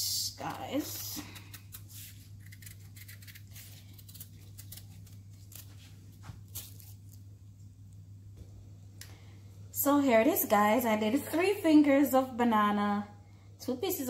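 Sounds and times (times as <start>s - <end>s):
knife scraping pumpkin skin: 1.0s - 5.9s.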